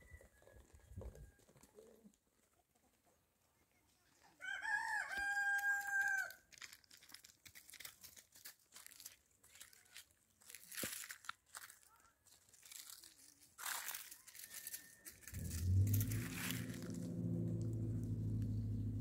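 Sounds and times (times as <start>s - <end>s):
rooster crowing: 4.4s - 6.4s, 14.0s - 17.4s
faint ticks and rustles: 5.5s - 16.8s.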